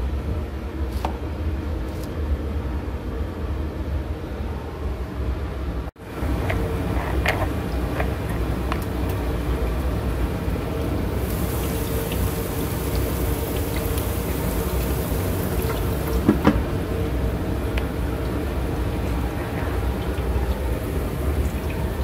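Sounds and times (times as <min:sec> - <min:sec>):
onion sizzling in oil: 0:06.1 - 0:19.3
oil popping: 0:06.2 - 0:16.8.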